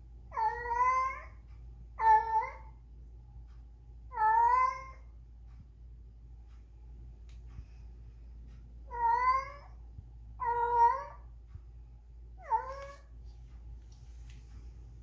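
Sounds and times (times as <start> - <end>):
cat meowing: 8.9 - 9.7, 10.4 - 11.2.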